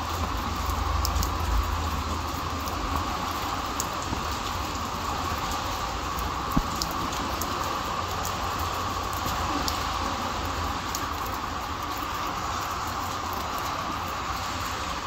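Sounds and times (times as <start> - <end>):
rain on wet concrete: 0.0 - 15.0.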